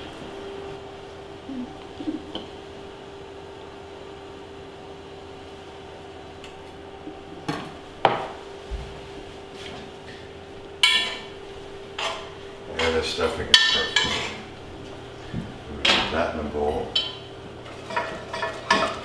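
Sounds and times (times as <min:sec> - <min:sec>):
steady hum: 0:00.0 - 0:19.0
metal cookware clinking: 0:10.8 - 0:11.4, 0:12.0 - 0:14.5, 0:16.8 - 0:19.0
pot lid and pots clattering: 0:10.8 - 0:11.4, 0:12.0 - 0:14.5, 0:16.9 - 0:19.0.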